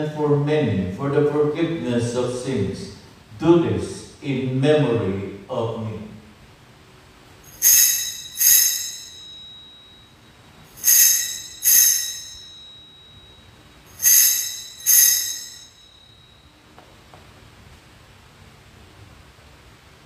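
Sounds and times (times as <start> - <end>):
bell ringing strikes: 7.5 - 17.1.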